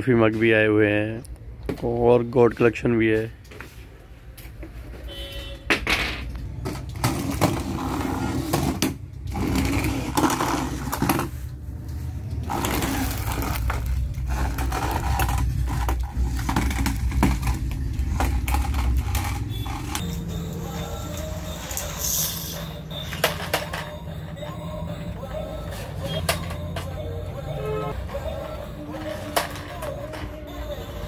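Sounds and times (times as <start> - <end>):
plastic wheels rattling on counter: 12.5 - 20.0.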